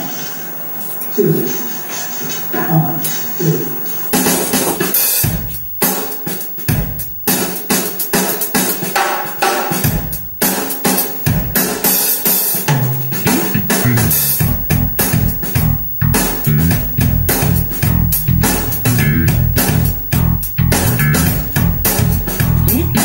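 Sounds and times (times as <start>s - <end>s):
drum-led music with bass: 3.0s - 23.0s.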